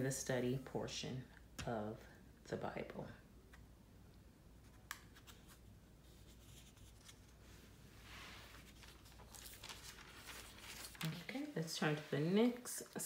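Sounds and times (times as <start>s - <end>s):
paper pages turning: 4.7s - 12.7s.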